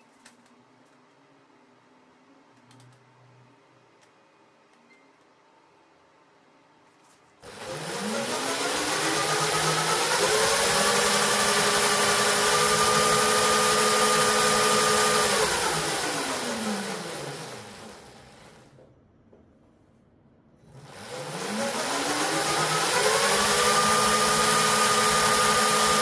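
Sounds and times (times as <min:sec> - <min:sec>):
electric motor whining: 0:07.5 - 0:18.2, 0:20.7 - 0:26.0.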